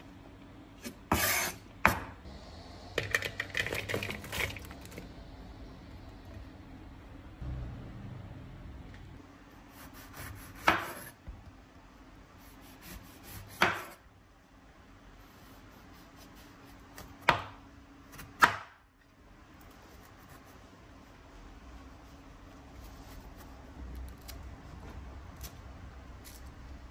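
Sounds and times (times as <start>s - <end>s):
knife chopping on wooden board: 10.1s - 11.1s, 12.8s - 14.0s.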